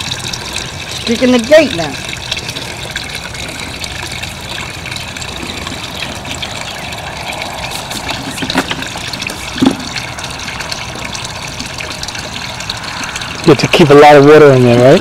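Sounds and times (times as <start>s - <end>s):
water rushing from hose: 0.0s - 15.0s.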